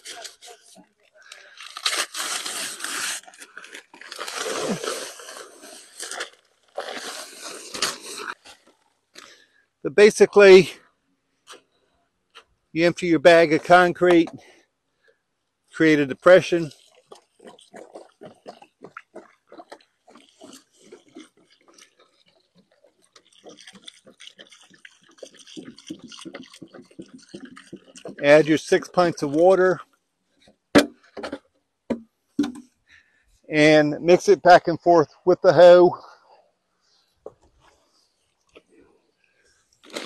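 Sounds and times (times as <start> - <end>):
paper bag crinkling: 0.0 - 8.9, 39.8 - 40.0
dry concrete mix pouring: 0.0 - 10.7, 15.7 - 29.9, 39.6 - 40.0
water glugging from jug: 16.7 - 29.4.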